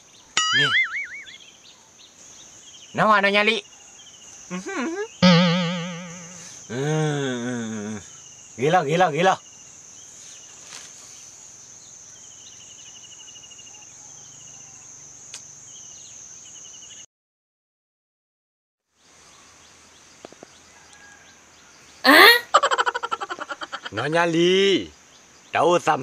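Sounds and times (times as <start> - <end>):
insects droning: 0.0 - 17.1, 19.0 - 26.0
rapid chirping trills: 0.4 - 6.7, 22.6 - 25.0.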